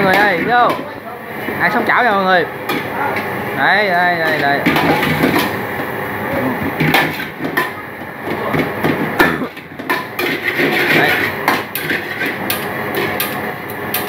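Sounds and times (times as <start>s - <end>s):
metal ladle scraping a wok: 9.9s - 13.3s.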